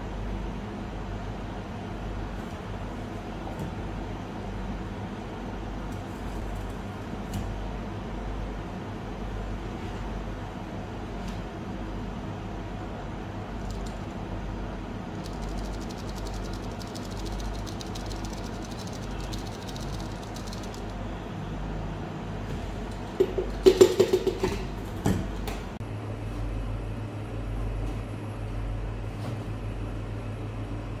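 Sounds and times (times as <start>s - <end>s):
kitchen machine hum: 1.4s - 31.0s
fine rapid ticks: 13.6s - 14.1s, 15.1s - 20.9s
loud clattering knocks: 23.2s - 24.6s.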